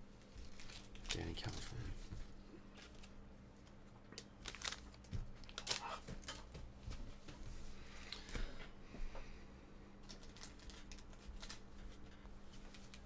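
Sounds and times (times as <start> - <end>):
faint steady hum: 0.0 - 13.0
trading cards and wrappers rustling: 0.3 - 3.2, 4.2 - 6.4, 10.0 - 13.0.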